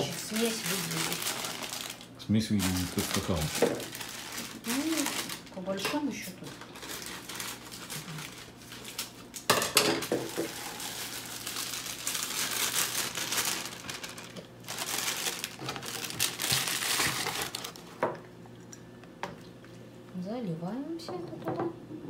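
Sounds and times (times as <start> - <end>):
plastic bag crinkling: 0.0 - 18.2.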